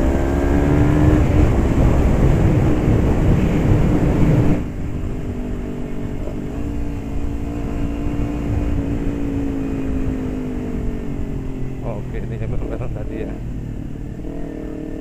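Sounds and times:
loud rushing wind: 0.0 - 11.9
motorcycle engine: 0.0 - 15.0.

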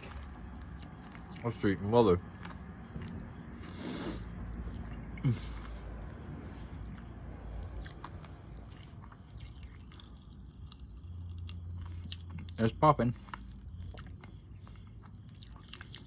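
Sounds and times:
chewing: 0.0 - 16.0
popping candy crackling in mouth: 8.6 - 11.6.

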